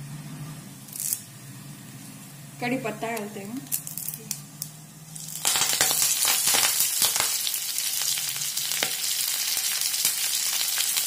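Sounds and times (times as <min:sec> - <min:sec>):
leaves sizzling in hot oil: 0:00.9 - 0:11.0
oil popping and crackling: 0:03.7 - 0:11.0.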